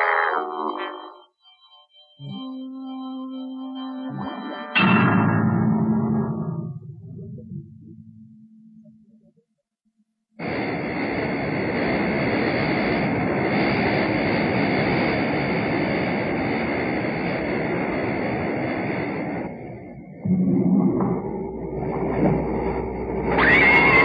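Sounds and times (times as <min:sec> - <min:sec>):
rushing rumble sound effect: 0:05.0 - 0:08.1, 0:10.4 - 0:24.0.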